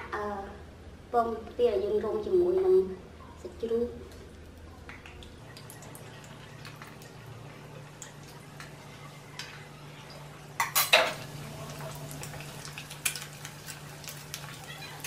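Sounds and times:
oil sizzling: 0:05.0 - 0:15.0.

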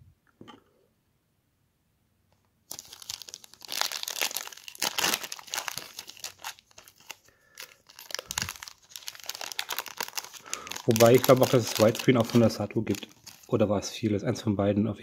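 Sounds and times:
foil wrapper crinkling: 0:02.7 - 0:13.6.

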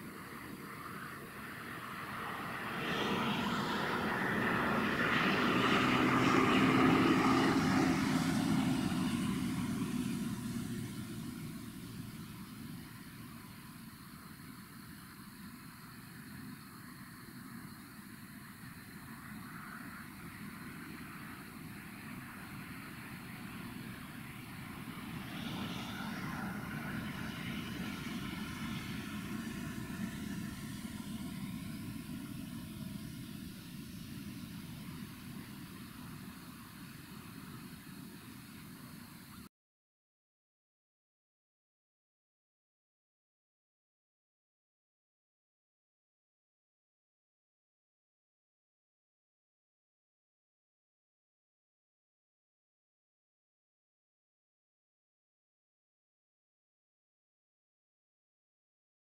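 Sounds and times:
engine drone passing by: 0:00.0 - 0:15.6, 0:18.2 - 0:39.5.

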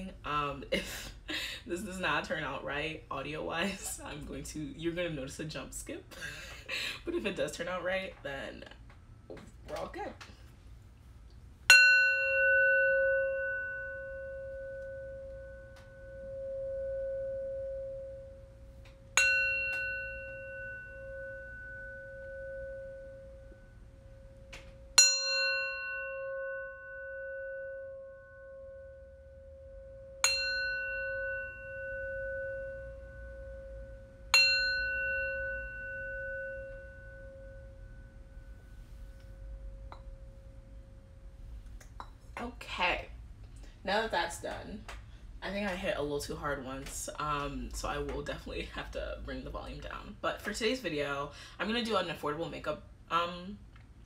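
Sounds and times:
metal singing bowl ringing: 0:11.7 - 0:41.3.

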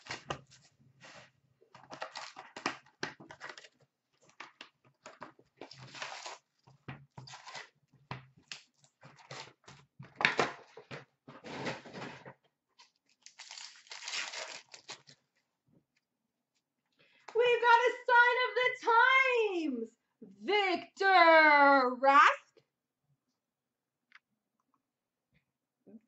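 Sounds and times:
plastic wrap crinkling: 0:05.6 - 0:06.6, 0:07.3 - 0:07.7, 0:12.9 - 0:15.2
cardboard scraping: 0:11.3 - 0:12.3.

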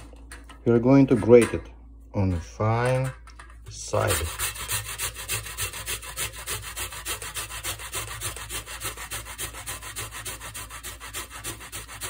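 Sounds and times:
ginger rasping on grater: 0:03.8 - 0:12.0.

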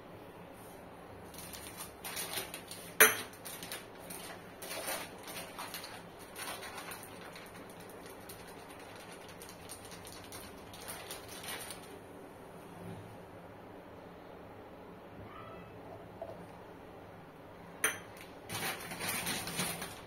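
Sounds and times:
kitchen utensils clattering: 0:03.0 - 0:03.4.

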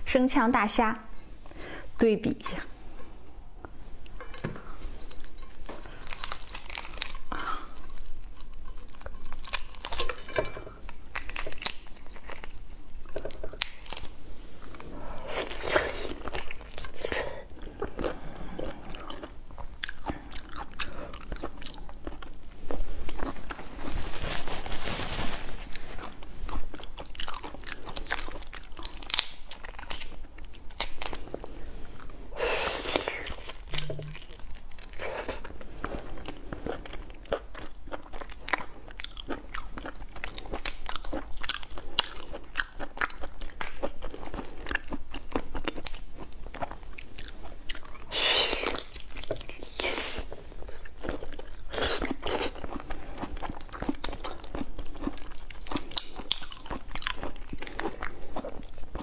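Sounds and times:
wet chewing: 0:25.9 - 0:32.1, 0:32.9 - 0:59.0.

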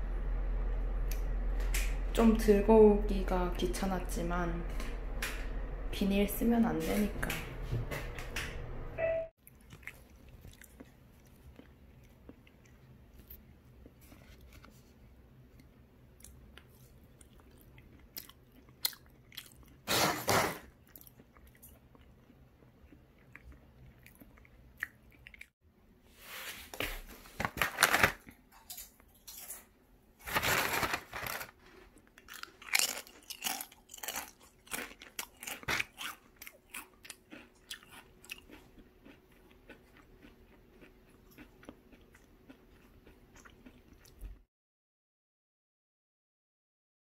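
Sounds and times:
chip bag crinkling: 0:27.0 - 0:29.6, 0:30.2 - 0:39.2
crispy chips cracking: 0:27.4 - 0:29.6, 0:30.2 - 0:41.5.

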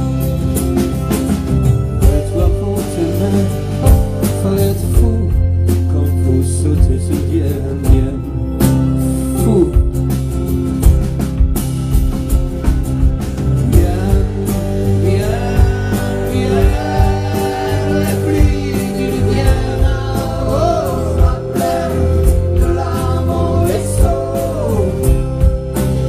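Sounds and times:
live rock band playing: 0:00.0 - 0:26.0
man singing: 0:02.0 - 0:10.1, 0:13.6 - 0:26.0.

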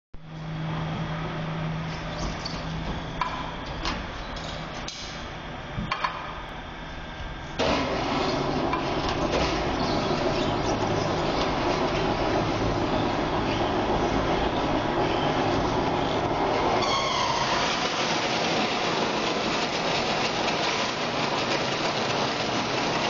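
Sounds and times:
machinery humming: 0:00.2 - 0:23.0
rough grinding mechanical noise: 0:07.5 - 0:23.0.

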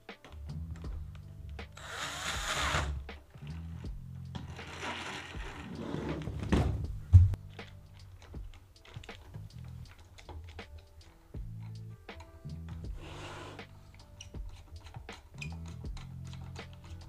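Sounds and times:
background music with beat: 0:00.0 - 0:17.0
cordless drill whirring: 0:01.8 - 0:03.0.

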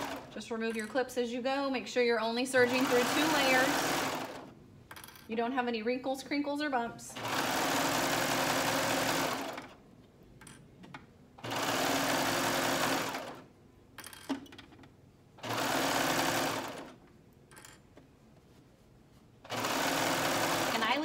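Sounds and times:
overlock machine stitching: 0:00.0 - 0:00.4, 0:02.6 - 0:04.5, 0:07.2 - 0:09.8, 0:11.4 - 0:13.5, 0:15.4 - 0:17.0, 0:19.4 - 0:21.0.

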